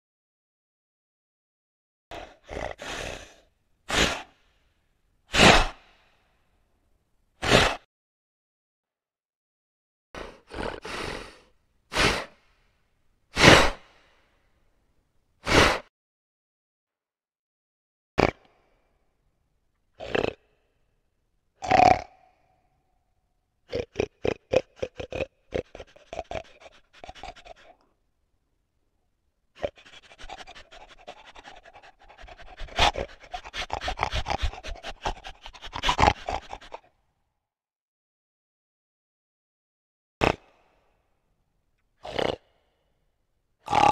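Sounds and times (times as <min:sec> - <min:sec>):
animal snorting: 0:02.1 - 0:04.4, 0:05.3 - 0:05.8, 0:07.4 - 0:07.8, 0:10.2 - 0:12.4, 0:13.4 - 0:13.9, 0:20.0 - 0:20.4, 0:23.7 - 0:27.8, 0:29.6 - 0:36.9, 0:42.0 - 0:42.5, 0:43.7 - 0:43.9
animal panting: 0:24.7 - 0:27.8, 0:29.6 - 0:36.9.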